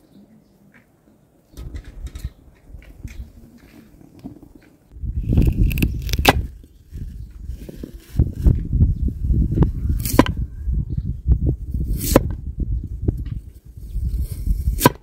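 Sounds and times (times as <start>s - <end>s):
steady low rumble: 4.9s - 14.7s.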